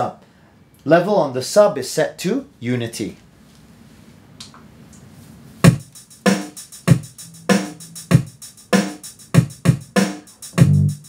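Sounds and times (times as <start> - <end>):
music over speaker: 5.6 - 11.0.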